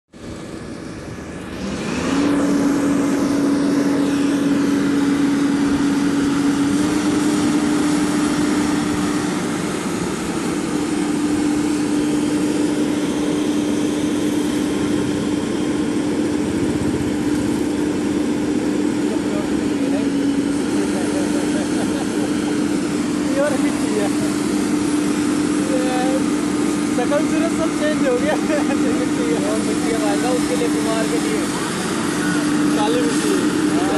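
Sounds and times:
excavator diesel engine running: 0.1 - 33.9
constant hum: 0.2 - 33.9.

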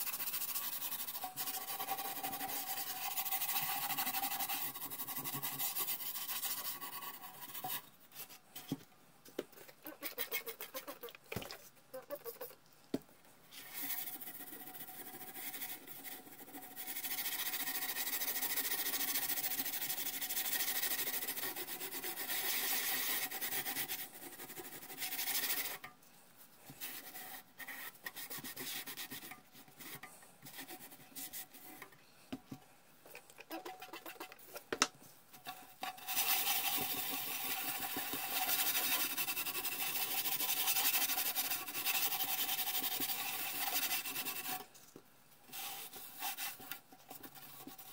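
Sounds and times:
steel wool scrubbing metal: 35.4 - 44.7.

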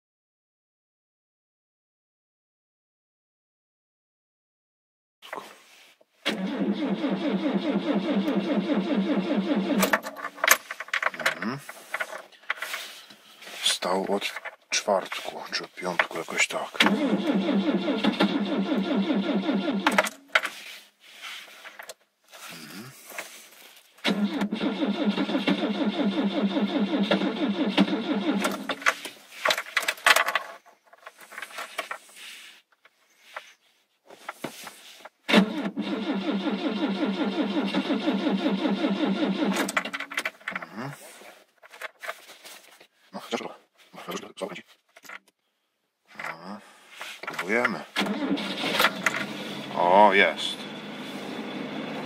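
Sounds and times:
starter cranking engine: 6.3 - 10.1, 16.8 - 20.2, 24.1 - 28.9, 35.3 - 40.1, 48.0 - 50.8.

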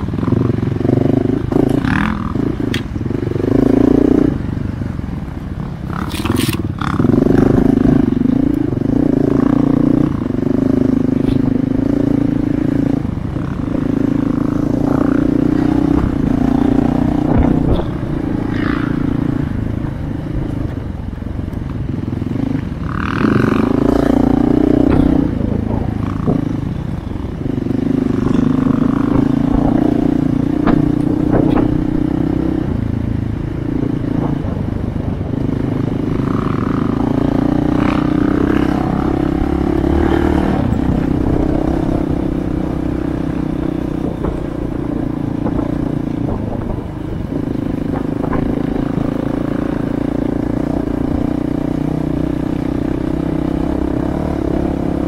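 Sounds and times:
dirt bike engine running: 21.7 - 55.0
bike knocks and clatter: 24.8 - 25.3, 30.6 - 31.9.

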